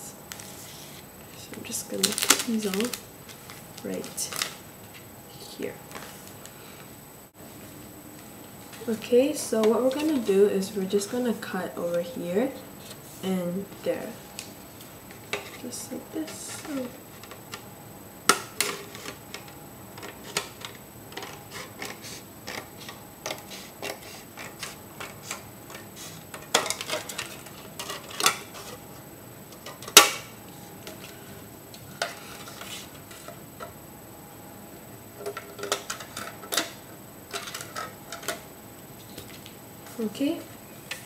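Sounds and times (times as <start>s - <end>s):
stiff plastic crackling: 1.6s - 5.0s.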